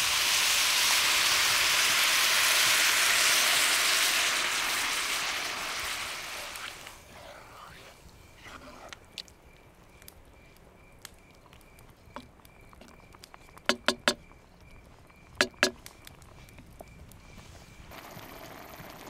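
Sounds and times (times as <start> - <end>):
sauce popping and crackling: 0.0 - 7.0, 8.4 - 16.8
wooden spoon knocking on pot: 13.6 - 14.2, 15.4 - 15.8.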